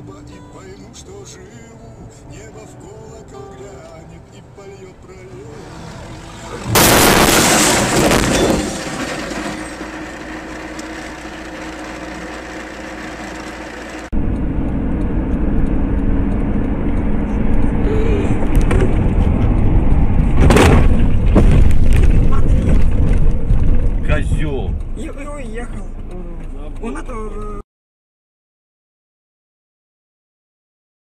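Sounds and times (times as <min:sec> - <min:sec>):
car road noise rumble: 0:00.5 - 0:27.6
sharp crash: 0:06.6 - 0:10.3, 0:20.2 - 0:24.1.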